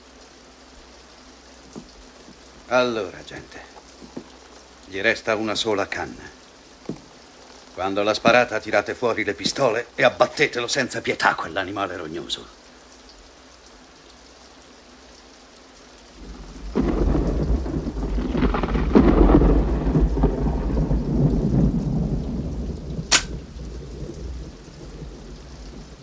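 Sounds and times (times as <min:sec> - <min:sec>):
rain falling: 0:00.0 - 0:26.0
rolling thunder: 0:16.2 - 0:26.0
shotgun hammer click: 0:23.1 - 0:23.4.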